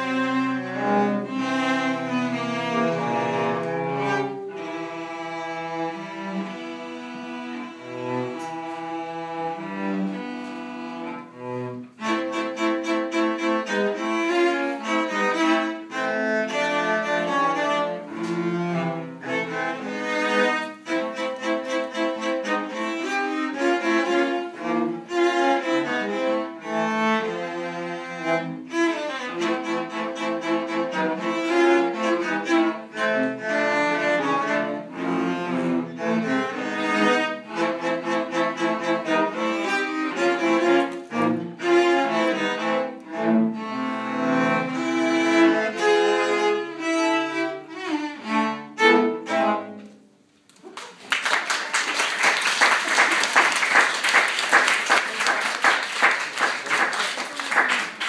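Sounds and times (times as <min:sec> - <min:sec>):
cellos playing in harmony: 0:00.0 - 0:50.4
audience clapping: 0:50.5 - 0:58.0.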